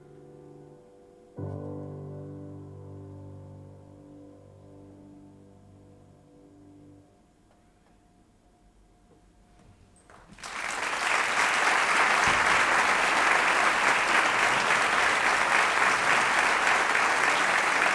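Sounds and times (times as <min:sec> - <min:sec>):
audience applause: 0:10.3 - 0:17.9.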